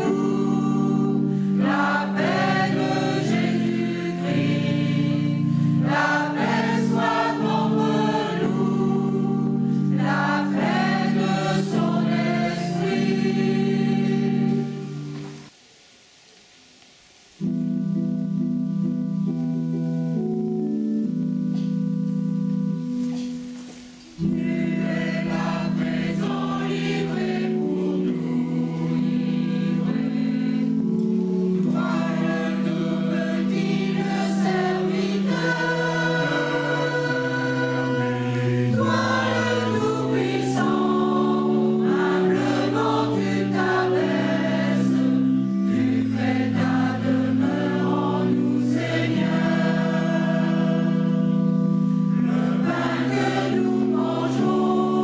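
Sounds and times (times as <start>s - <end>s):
mixed choir singing: 0.0s - 15.5s, 24.1s - 55.0s
electronic keyboard accompaniment: 0.0s - 15.6s, 17.4s - 55.0s.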